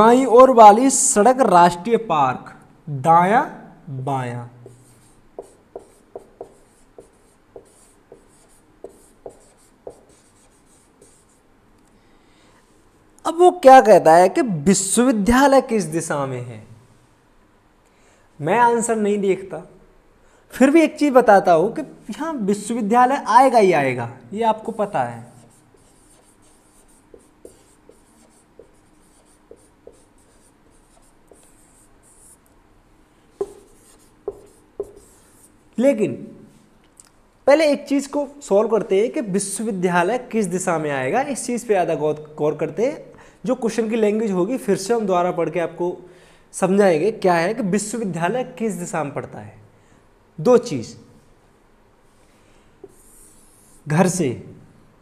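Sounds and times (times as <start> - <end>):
marker pen tapping and stroking: 4.6 - 11.4, 25.7 - 32.5, 33.4 - 35.5, 52.8 - 53.7
marker tip scratchy hiss: 25.5 - 32.4, 52.8 - 53.8.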